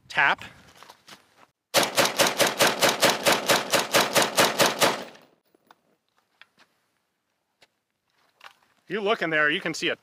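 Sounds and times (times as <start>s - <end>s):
rifle firing rapid shots: 1.8s - 5.2s.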